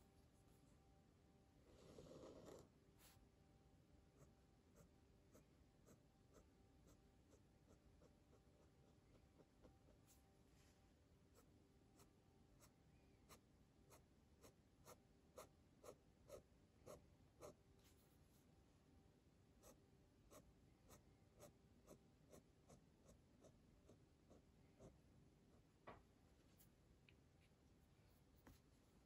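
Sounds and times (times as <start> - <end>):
pen scratching on paper: 4.2 - 10.1, 13.3 - 17.6.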